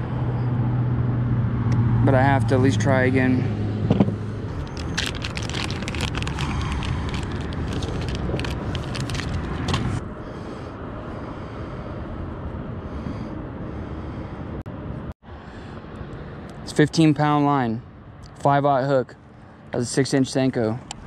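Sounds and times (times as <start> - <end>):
steady low rumble: 1.1 - 16.7
plastic bag crinkling: 4.6 - 9.8.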